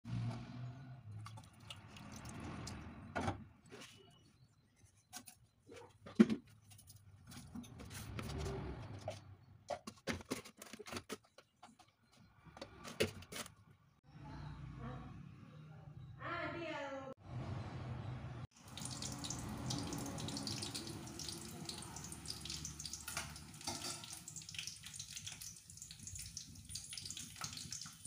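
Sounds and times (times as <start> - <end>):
steel utensils clinking: 19.2 - 26.6.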